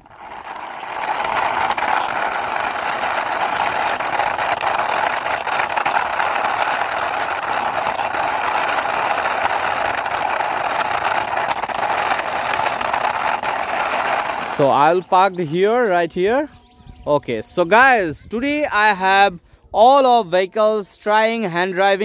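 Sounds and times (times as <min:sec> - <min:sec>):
toy wheels rolling on concrete: 0:00.0 - 0:16.4.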